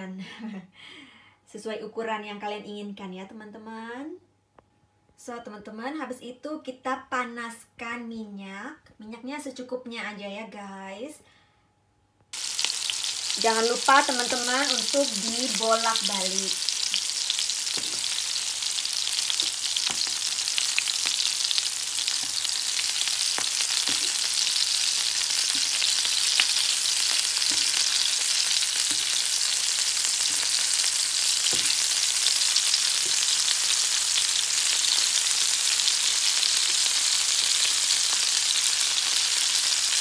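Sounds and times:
patties sizzling in oil: 12.4s - 40.0s.

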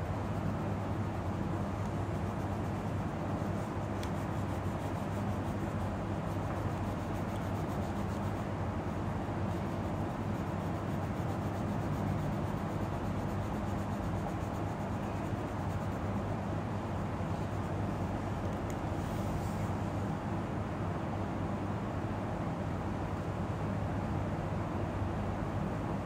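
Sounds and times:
steady low hum: 0.0s - 26.0s
pencil rubbing on paper: 0.1s - 8.5s, 9.4s - 16.1s.

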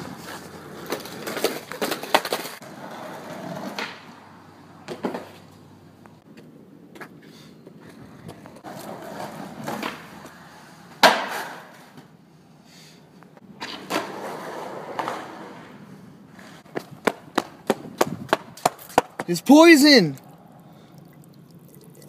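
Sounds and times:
skateboard wheels rolling on concrete: 0.0s - 20.5s
skateboard clacks: 0.1s - 4.1s, 11.0s - 11.9s, 16.7s - 19.3s
skateboard landing slap: 11.0s - 11.9s.

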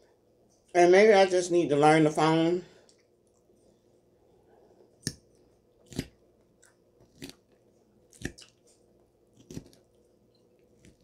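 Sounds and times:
person chewing food: 4.5s - 11.0s.

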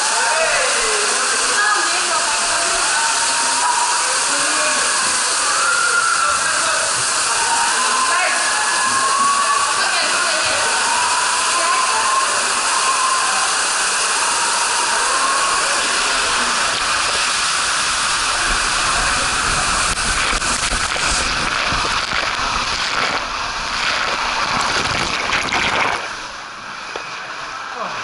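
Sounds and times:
water rushing through tube slide: 0.0s - 28.0s
low rumbling: 15.6s - 26.8s.

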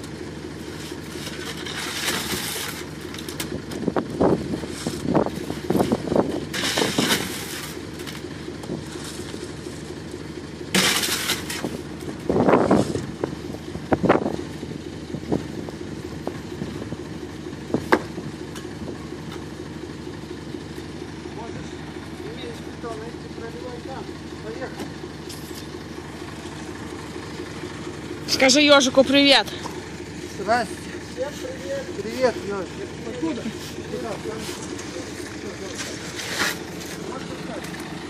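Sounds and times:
concrete mixer truck running: 0.0s - 38.0s
shovels scraping wet concrete: 0.7s - 3.3s, 4.6s - 5.1s, 5.8s - 7.8s, 10.8s - 11.8s, 33.3s - 37.8s.

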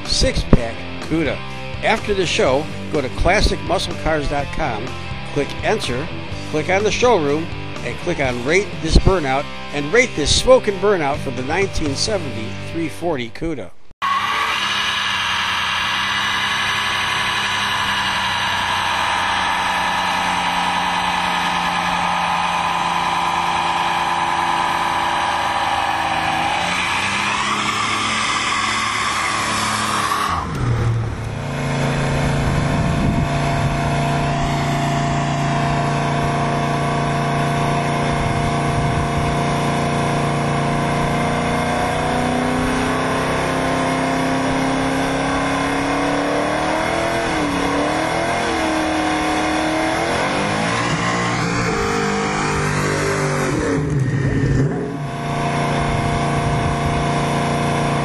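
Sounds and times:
car engine revving: 0.0s - 12.9s, 13.7s - 58.0s
tyres spinning: 14.0s - 38.7s.

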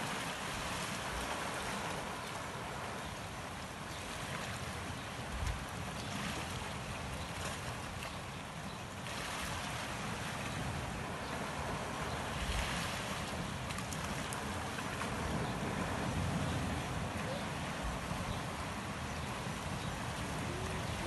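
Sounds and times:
waves washing over rocks: 0.0s - 8.0s, 9.0s - 21.0s
wind on microphone: 14.1s - 21.0s.

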